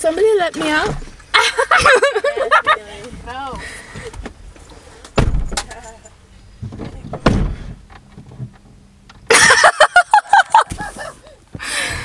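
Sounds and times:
car door shutting: 3.1s - 5.9s, 6.6s - 9.3s, 10.5s - 12.0s.

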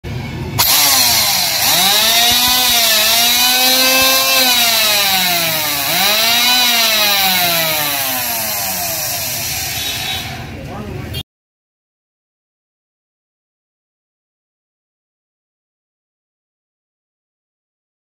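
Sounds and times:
electric hand planer motor whine: 0.6s - 10.5s.

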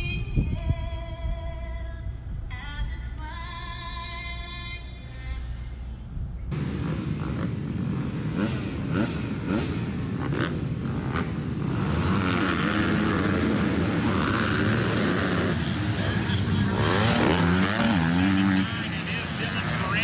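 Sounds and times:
motocross bike engines revving: 6.5s - 20.0s.

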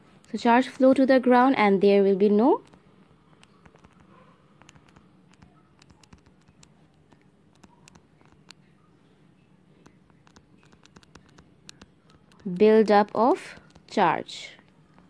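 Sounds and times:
stylus ticks and scratches on touchscreen: 2.4s - 8.7s, 9.4s - 15.0s.

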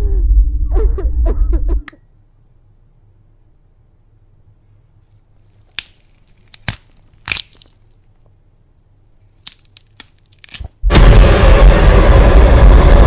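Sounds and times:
crackling crunching clicks: 5.6s - 8.3s, 9.3s - 10.8s
loud burst of harsh noise: 10.9s - 13.0s.

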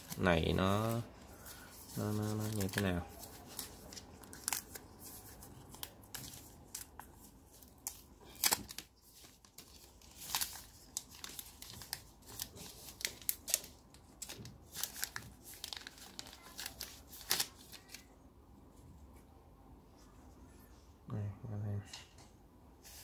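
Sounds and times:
plastic film crinkling: 0.0s - 18.1s.

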